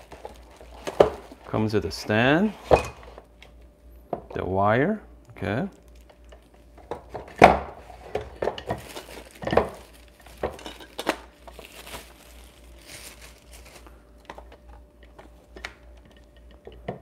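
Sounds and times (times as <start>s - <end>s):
plastic bag crinkling: 0.0s - 1.7s, 5.7s - 6.8s, 8.4s - 16.3s.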